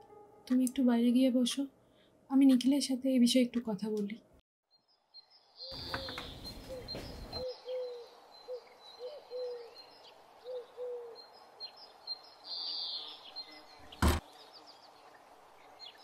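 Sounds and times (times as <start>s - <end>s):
birds chirping: 4.8s - 16.0s.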